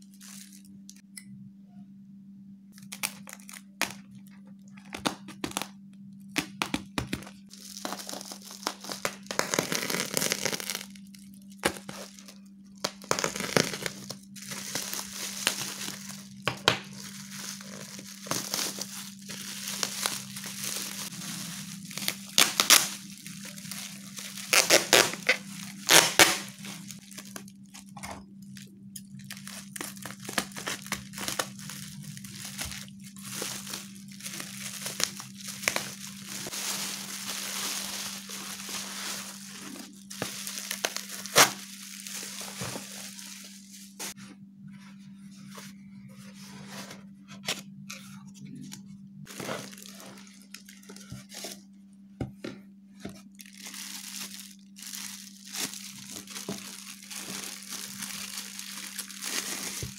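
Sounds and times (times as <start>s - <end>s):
plastic bag rustling: 0.0s - 0.7s, 7.3s - 44.2s, 49.2s - 51.7s, 53.2s - 59.9s
bubble wrap crinkling: 0.0s - 1.0s, 2.7s - 44.2s, 48.6s - 51.7s, 53.1s - 59.9s.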